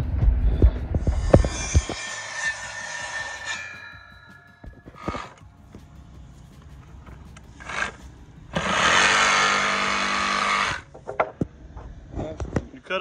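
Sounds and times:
jigsaw cutting wood: 0:07.6 - 0:08.0, 0:08.6 - 0:10.8.

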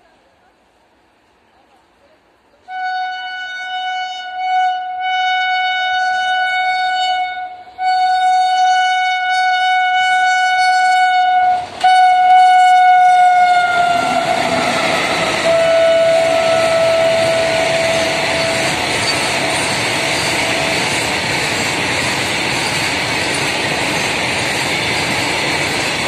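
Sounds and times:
locomotive horn blasts: 0:02.7 - 0:20.9
passing train rushing: 0:05.3 - 0:26.0.

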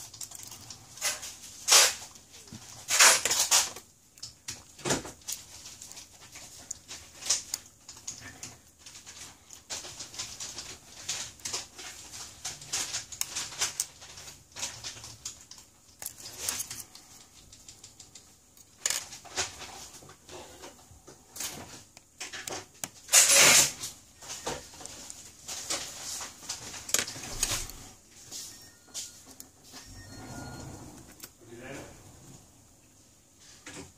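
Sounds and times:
scrape or clatter: 0:00.4 - 0:03.8, 0:23.1 - 0:23.9.

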